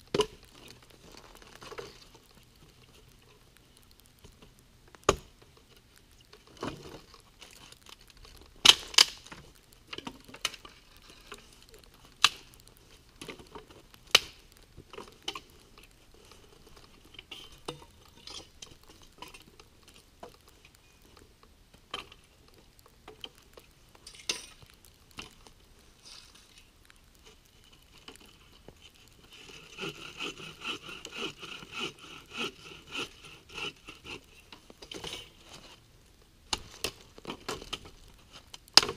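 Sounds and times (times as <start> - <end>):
dry branches snapping: 6.8 - 9.4, 11.7 - 15.6
rhythmic rasping against wood: 29.4 - 34.2.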